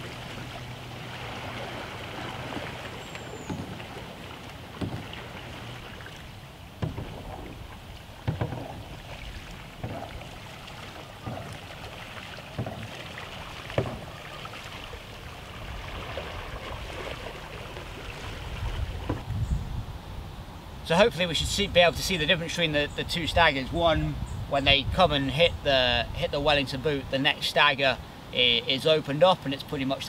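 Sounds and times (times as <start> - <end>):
kayak paddle splashing: 0.0 - 19.3.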